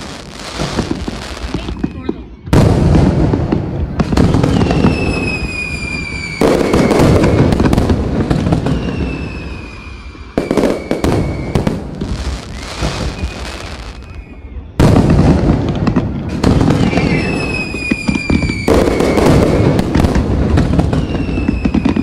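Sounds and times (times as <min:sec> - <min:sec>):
falling firework whistle: 0:00.0 - 0:22.0
fireworks bangs and pops: 0:00.0 - 0:22.0.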